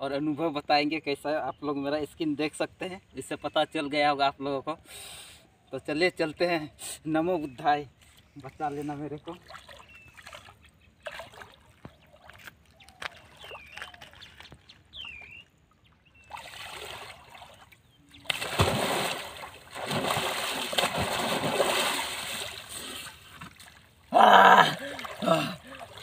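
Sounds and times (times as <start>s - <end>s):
water sloshing and splashing: 9.2s - 26.0s.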